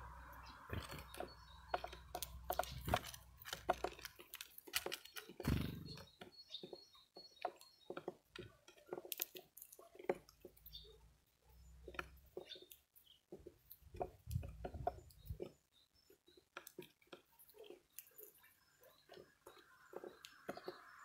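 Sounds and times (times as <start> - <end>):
bird beak cracking seed shells: 0.8 - 6.0, 8.8 - 10.6.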